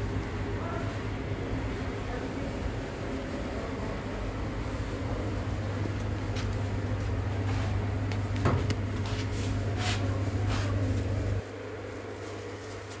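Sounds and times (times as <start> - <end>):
ventilation fans humming: 0.0 - 13.0.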